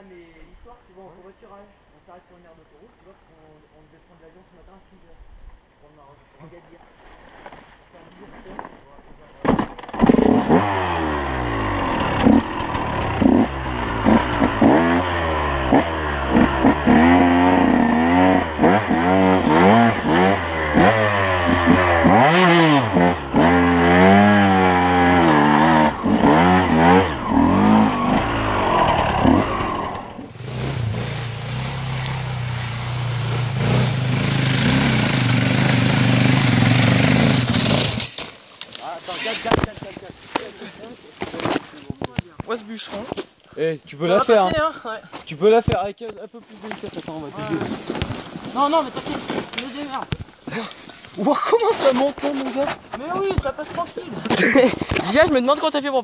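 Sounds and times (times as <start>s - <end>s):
dirt bike running: 9.6s - 41.8s
motorcycle revving hard: 10.0s - 38.2s.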